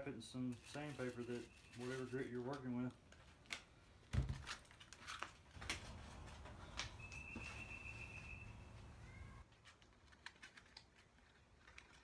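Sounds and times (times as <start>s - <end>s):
sandpaper crinkling and tapping: 0.3s - 3.6s.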